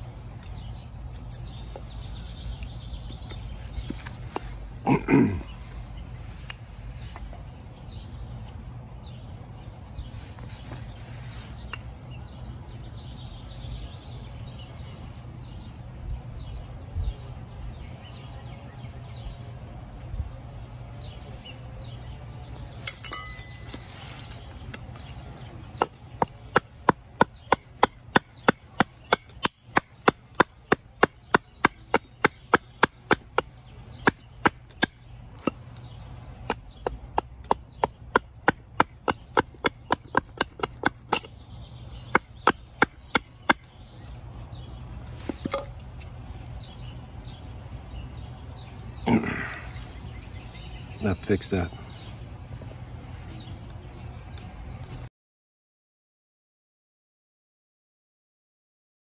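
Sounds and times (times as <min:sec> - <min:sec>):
hatchet chopping wood: 0:25.8 - 0:41.4, 0:42.0 - 0:43.8, 0:45.2 - 0:45.8.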